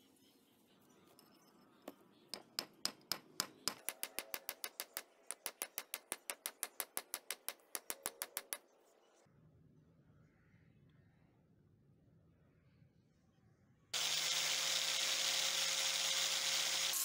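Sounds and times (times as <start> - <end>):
hammer tapping metal: 1.9 - 8.6.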